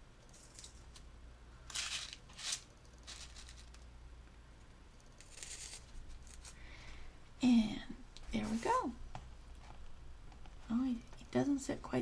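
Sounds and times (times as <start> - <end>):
paper crinkling: 1.7 - 3.8.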